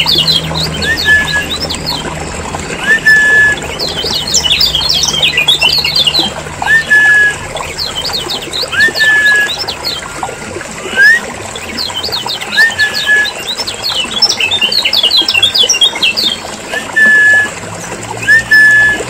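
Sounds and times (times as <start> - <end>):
bird rising whistle: 0.7 - 1.7, 2.8 - 3.8, 6.6 - 7.4, 8.7 - 9.6, 12.5 - 13.5, 16.7 - 17.6, 18.2 - 19.0.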